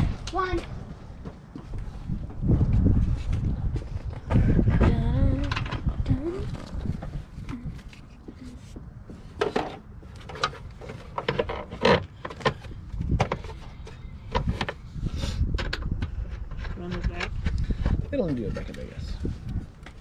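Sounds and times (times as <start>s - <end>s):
plastic parts clicking and scraping: 9.3s - 20.0s.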